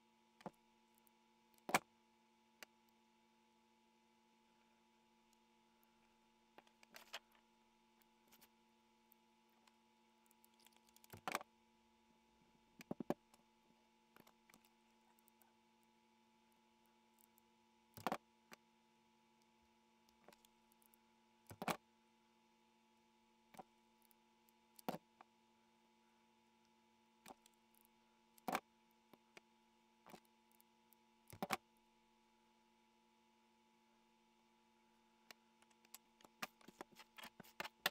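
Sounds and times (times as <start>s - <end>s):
faint electrical hum: 0.0s - 37.9s.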